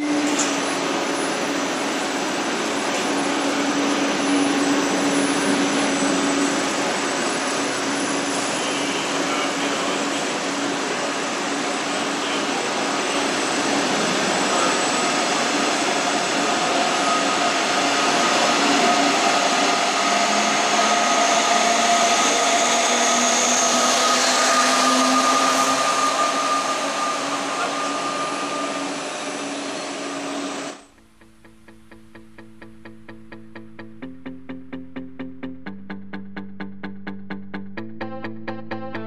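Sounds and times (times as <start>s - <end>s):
train wheel running noise: 0.0s - 33.0s
electric drive whine: 23.7s - 39.0s
background music: 37.8s - 39.0s.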